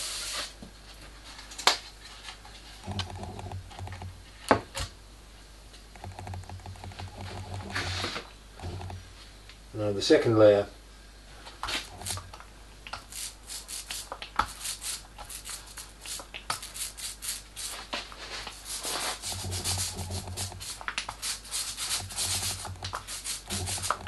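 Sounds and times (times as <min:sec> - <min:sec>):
foam roller rubbing on wood: 0:07.1 - 0:08.9, 0:11.7 - 0:12.3, 0:13.0 - 0:24.0.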